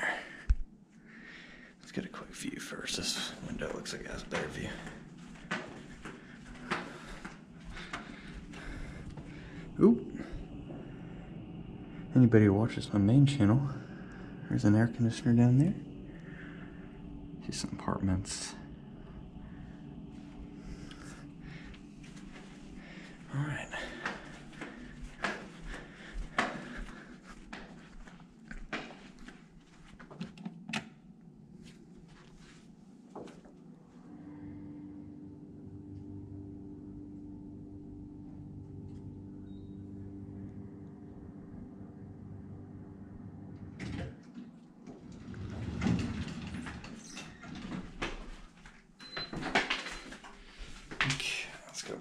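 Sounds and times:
steady low hum: 0.0 - 52.0
footsteps: 3.1 - 11.3, 20.1 - 30.4, 31.6 - 33.6
sandal footsteps on carpet: 23.9 - 30.2
elevator doors sliding open: 43.7 - 50.4.

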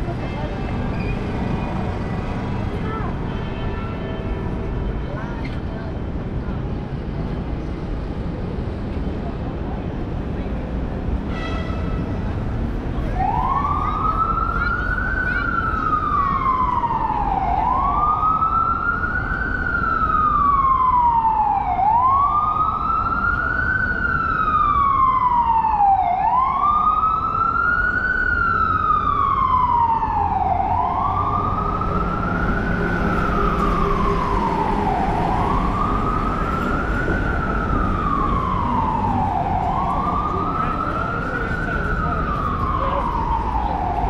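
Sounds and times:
city traffic rumble: 0.0 - 44.0
siren wailing: 13.1 - 44.0.

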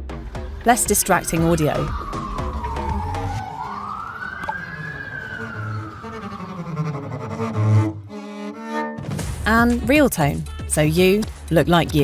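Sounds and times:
background music: 0.0 - 12.0
siren wailing: 0.7 - 8.1.

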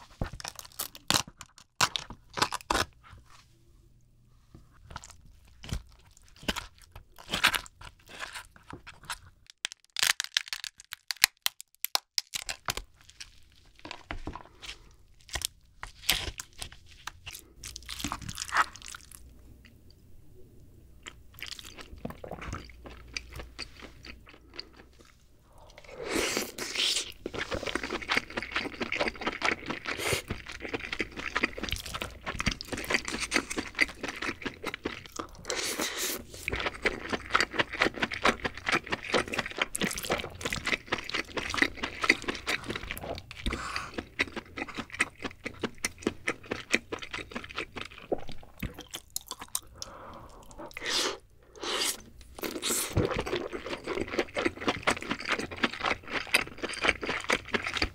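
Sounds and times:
crab shell cracking and clicking: 9.4 - 12.9.

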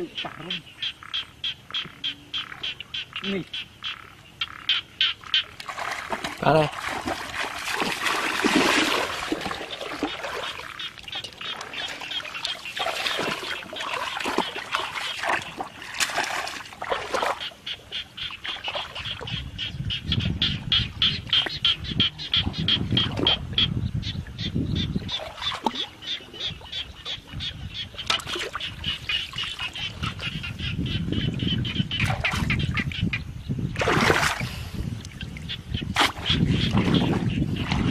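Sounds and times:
water splashing from wading: 5.2 - 19.4, 25.1 - 30.3, 31.9 - 32.8, 33.8 - 37.9.

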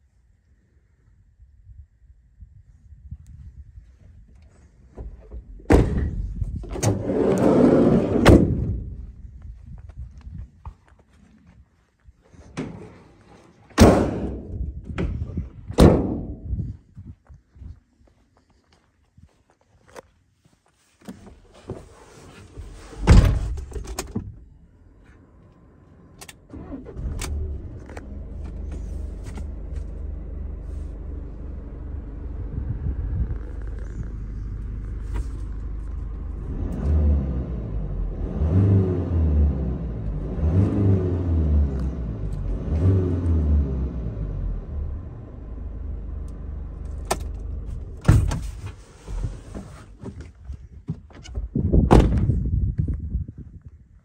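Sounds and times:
van door shutting: 5.2 - 8.9, 13.8 - 16.4, 22.6 - 24.4, 46.9 - 50.2, 51.0 - 52.4
engine revving: 26.5 - 47.8
diesel engine idling: 26.6 - 36.6.

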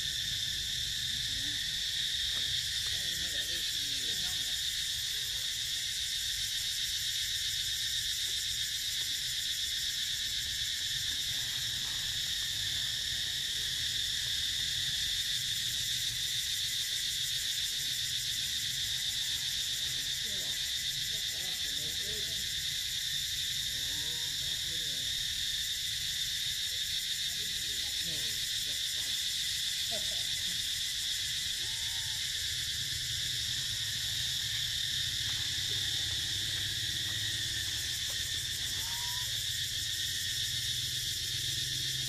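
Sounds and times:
insects buzzing shrilly: 0.0 - 42.0
faint wavering calls: 31.4 - 32.9, 33.5 - 40.1.

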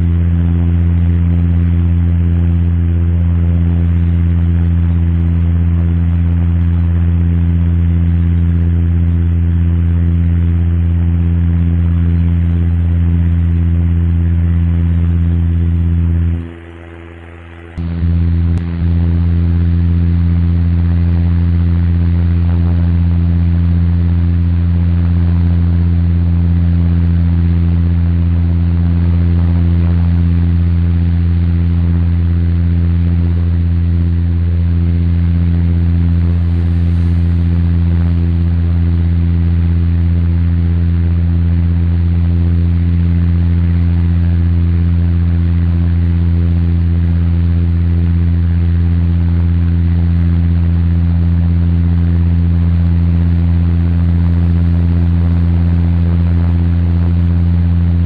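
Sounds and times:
airliner cabin hum: 10.6 - 41.1
steady tones: 35.8 - 38.6.

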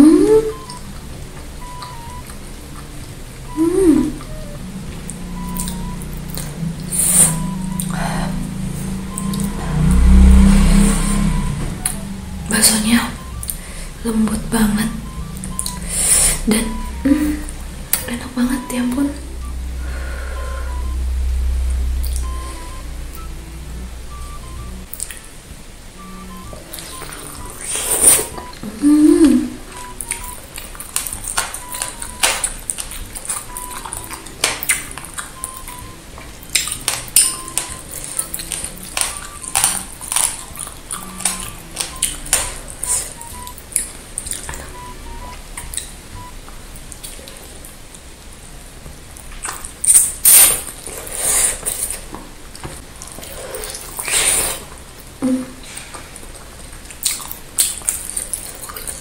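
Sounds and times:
faint background music: 0.0 - 59.0
wet chewing mouth sounds: 29.7 - 44.8, 53.0 - 54.8, 55.6 - 59.0.

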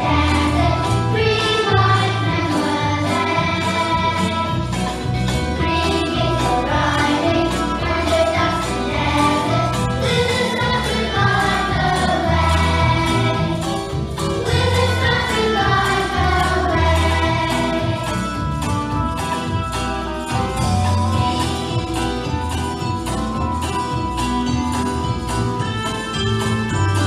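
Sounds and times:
children singing: 0.0 - 18.5
backing track with steady beat: 0.0 - 27.0.

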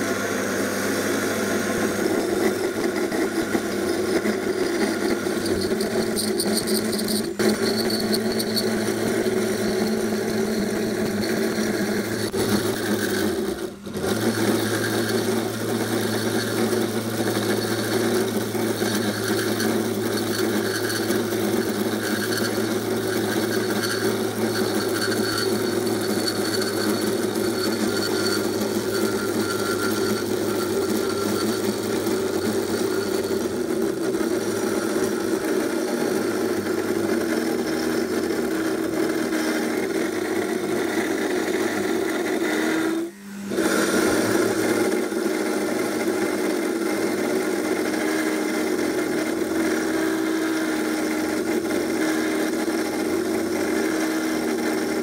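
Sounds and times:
saw cutting metal tubing: 1.2 - 55.0.

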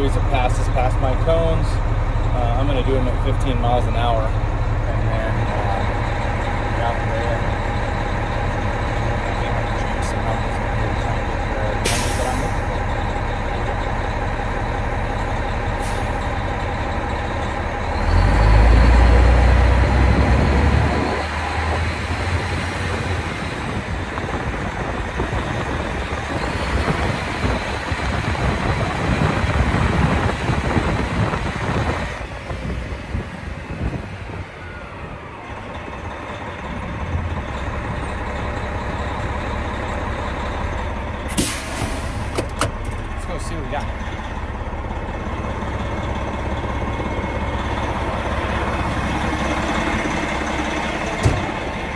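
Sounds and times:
diesel truck engine revving: 0.0 - 51.9
short air hisses: 41.3 - 42.3.

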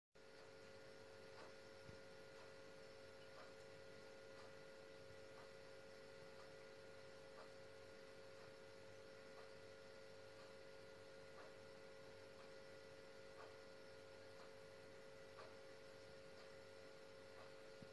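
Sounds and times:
faint steady hum: 0.2 - 17.9
soft ticking: 0.2 - 17.9.

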